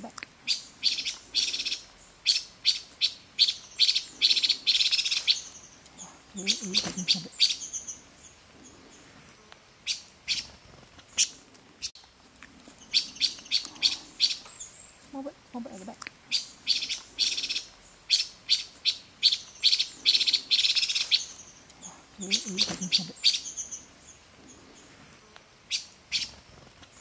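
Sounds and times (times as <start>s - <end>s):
bird harsh scolding calls: 0.5s - 8.0s, 12.8s - 14.8s, 15.6s - 23.9s.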